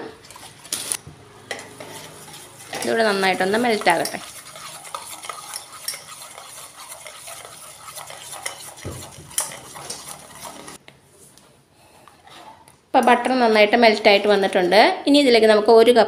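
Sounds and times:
metal spoon scraping a saucepan: 1.5 - 10.8.

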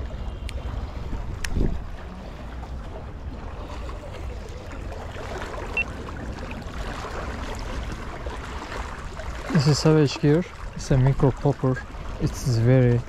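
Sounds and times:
wind buffeting microphone: 0.0 - 9.5.

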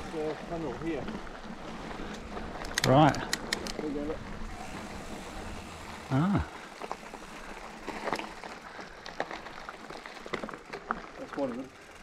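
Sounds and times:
bike tyres rolling on gravel: 0.0 - 12.0
stones crunching clicks: 2.0 - 3.9.

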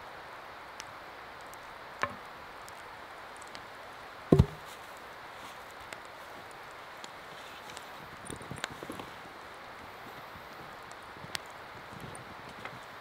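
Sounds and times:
steady soft hiss: 0.0 - 13.0
wood knocking on wood: 4.3 - 4.7.

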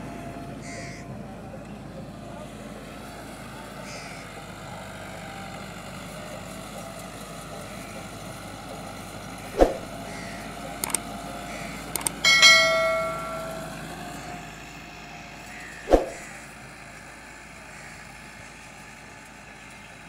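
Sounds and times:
tractor diesel engine running: 0.0 - 20.0
sharp clicks: 10.8 - 11.0, 11.9 - 12.2
bell-like ding: 12.0 - 14.1.

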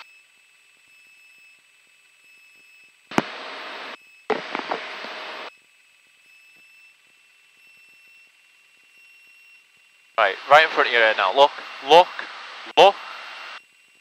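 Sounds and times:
faint electrical whine: 0.0 - 14.0
headset intercom hiss bursts: 10.2 - 13.6.

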